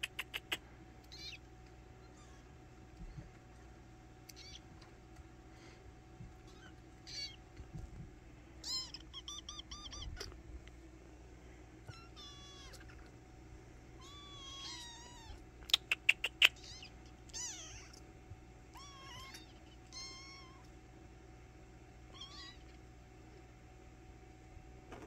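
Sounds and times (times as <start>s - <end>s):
kittens mewing: 0.0s - 5.0s, 6.2s - 7.8s, 8.6s - 10.5s, 11.8s - 13.2s, 14.0s - 20.8s, 22.1s - 22.9s.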